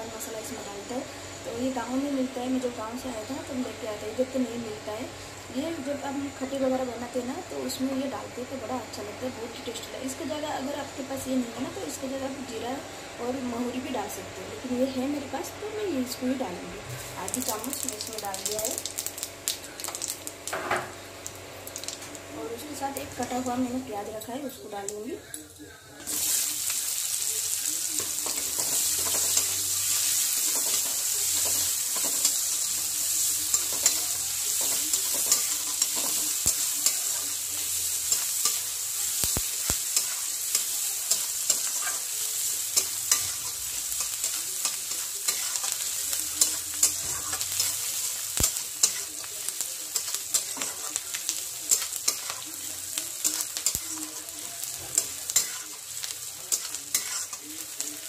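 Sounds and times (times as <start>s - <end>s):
onions sizzling in hot oil: 0.0s - 58.0s
spatula scraping a pan: 54.8s - 55.7s, 56.5s - 57.4s.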